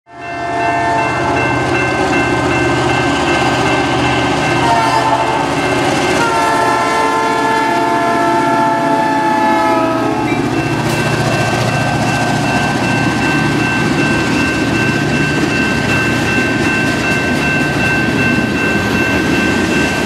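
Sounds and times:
model locomotive horn: 0:00.1 - 0:01.5, 0:04.6 - 0:05.5, 0:06.1 - 0:10.4
model train running on track: 0:00.1 - 0:20.0.

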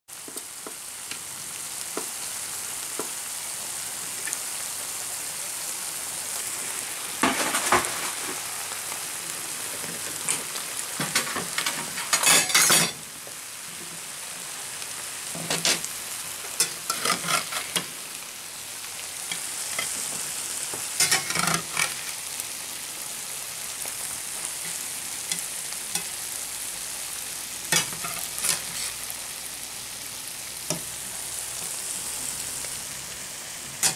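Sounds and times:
fish sizzling in a frying pan: 0:00.1 - 0:33.9
metal spatula scraping a pan: 0:11.0 - 0:13.0, 0:16.6 - 0:17.9, 0:21.0 - 0:22.1, 0:27.7 - 0:29.1.

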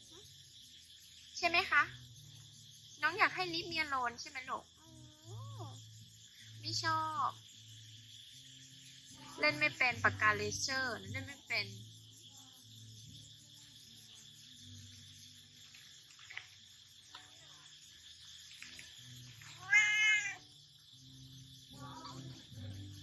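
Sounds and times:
insects chirring: 0:00.0 - 0:23.0
cat meowing: 0:19.6 - 0:20.5.

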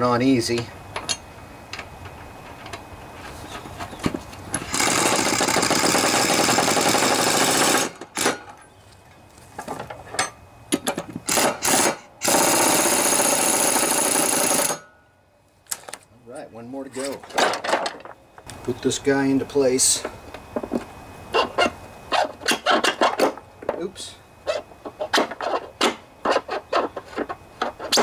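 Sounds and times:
pneumatic impact wrench hammering: 0:04.5 - 0:08.6, 0:10.2 - 0:14.9, 0:21.4 - 0:23.4, 0:24.9 - 0:28.0.

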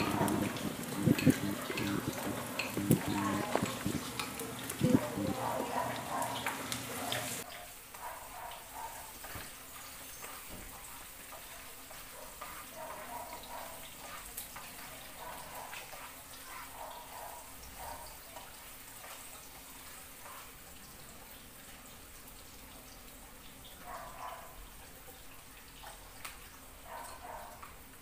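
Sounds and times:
spatula and fork scraping pan: 0:00.0 - 0:07.5, 0:09.0 - 0:17.2
onion and garlic frying: 0:00.0 - 0:28.0.

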